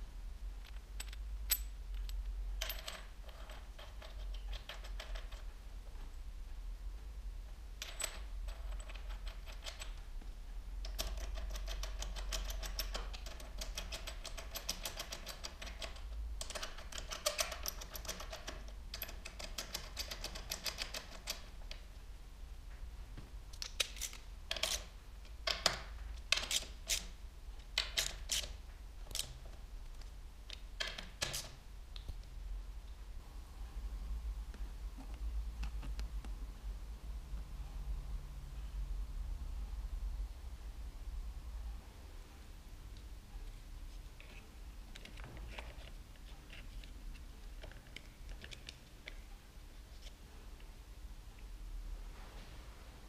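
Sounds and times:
socket ratchet clicking: 0:10.9 - 0:21.4.

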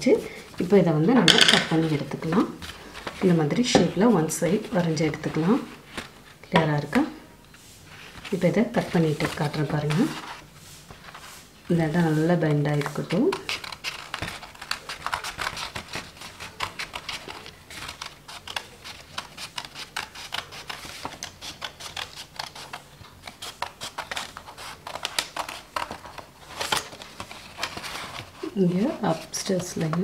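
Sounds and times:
scissors snipping paper: 0:12.4 - 0:30.0.

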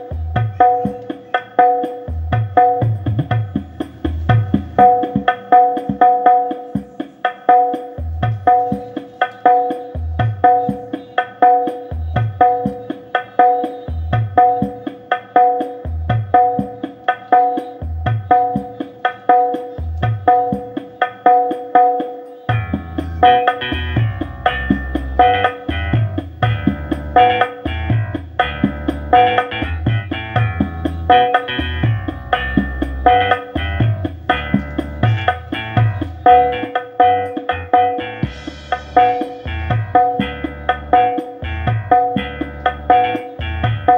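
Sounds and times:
rhythmic percussion music: 0:00.0 - 0:43.9
deep bass hits: 0:22.5 - 0:43.9.

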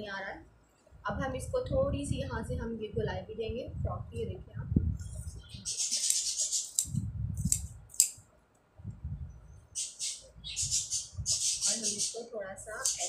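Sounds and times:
scissors snipping cloth: 0:06.0 - 0:08.2.

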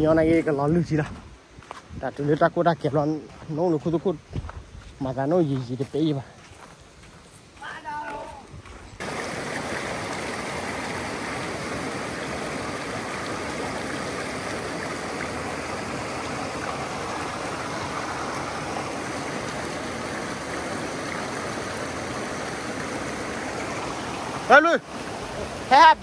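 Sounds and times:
stream water flowing: 0:05.2 - 0:26.0.

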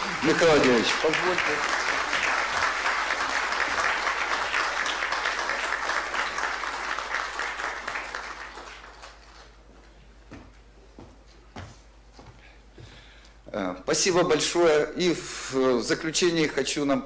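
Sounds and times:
audience applauding: 0:00.0 - 0:09.6.

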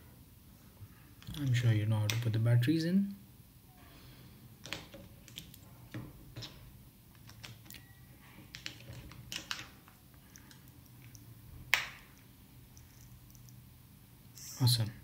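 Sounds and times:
small plastic clicks and knocks: 0:04.6 - 0:07.8, 0:08.5 - 0:12.0.

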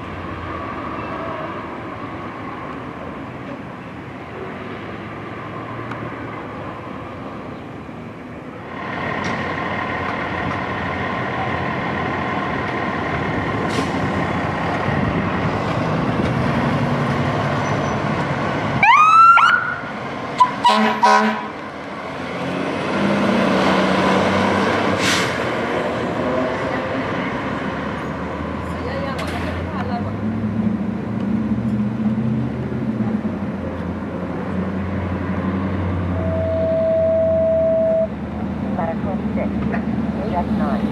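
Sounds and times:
fire truck engine pulling away: 0:04.6 - 0:39.3
air horn blasts: 0:20.4 - 0:21.6, 0:36.2 - 0:38.1.

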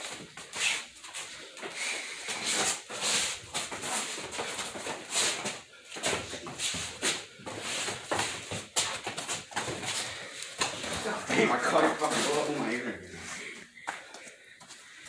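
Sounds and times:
boxers breathing hard: 0:01.1 - 0:08.6, 0:09.6 - 0:11.0, 0:13.1 - 0:15.0.

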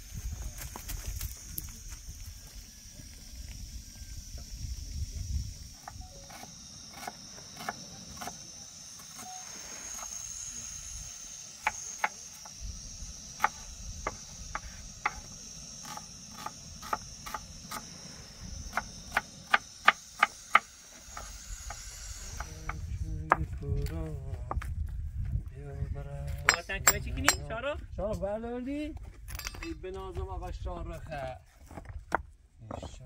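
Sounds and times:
crickets chirping: 0:00.0 - 0:23.6, 0:26.2 - 0:27.8
hammer striking stone: 0:11.6 - 0:12.2, 0:26.4 - 0:27.5.

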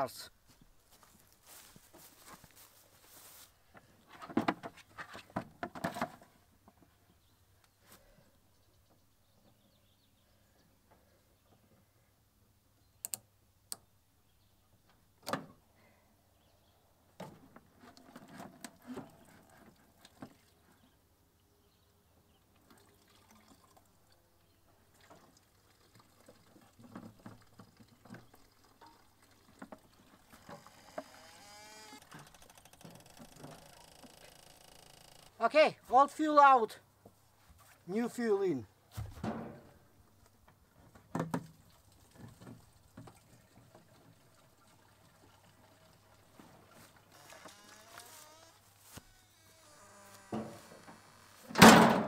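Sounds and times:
fuel trickling into bucket: 0:22.5 - 0:34.7, 0:41.5 - 0:51.6.

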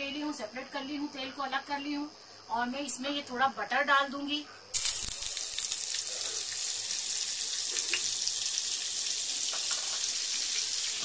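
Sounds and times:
butter sizzling in a frying pan: 0:04.8 - 0:11.0.

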